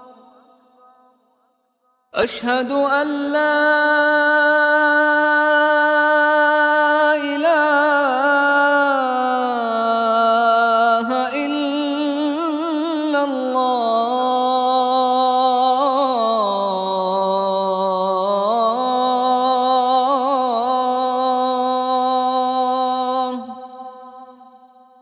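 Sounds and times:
person chanting call to prayer: 0:02.1 - 0:24.8.

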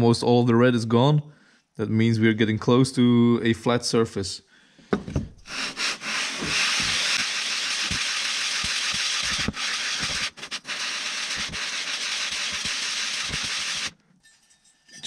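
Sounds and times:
metal rubbed on wet sandpaper: 0:05.5 - 0:14.0.

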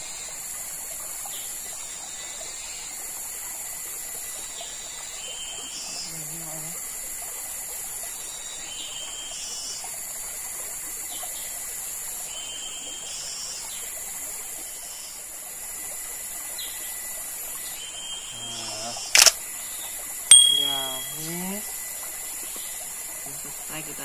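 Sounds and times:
stream trickling over rocks: 0:00.1 - 0:24.0
high-pitched insect chorus: 0:16.6 - 0:19.3
sharp loud click: 0:19.2 - 0:19.4, 0:20.3 - 0:21.3.

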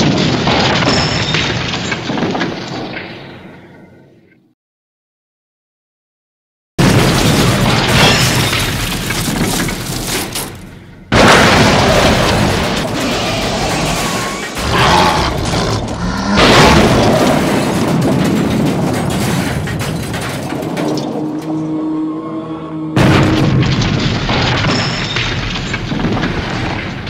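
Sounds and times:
explosion booms: 0:06.8 - 0:09.8, 0:11.1 - 0:21.4, 0:23.0 - 0:27.0.

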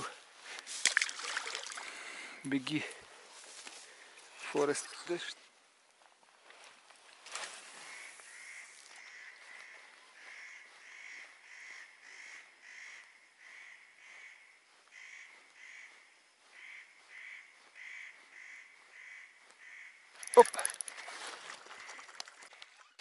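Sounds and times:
bird calling: 0:07.7 - 0:23.0.

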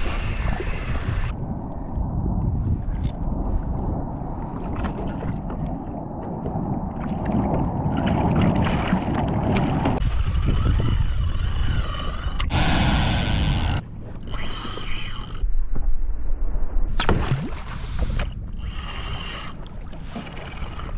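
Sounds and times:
fishing reel drag whining: 0:00.0 - 0:01.3, 0:10.0 - 0:15.5, 0:18.5 - 0:19.6
water against kayak hull: 0:00.0 - 0:16.2, 0:16.9 - 0:20.9
wind buffeting microphone: 0:00.0 - 0:19.5.

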